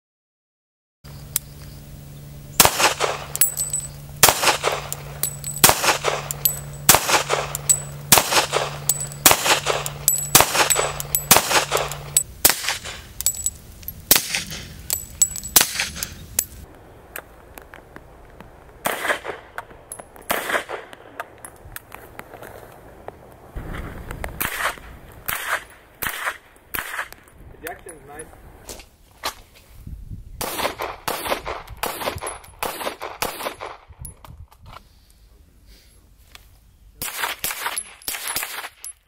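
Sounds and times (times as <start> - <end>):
suppressed pistol gunshots: 2.6 - 13.0, 18.8 - 19.5.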